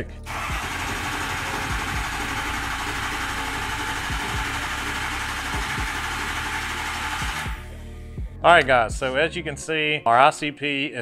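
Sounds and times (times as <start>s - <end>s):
diesel engine cranking: 0.2s - 7.6s.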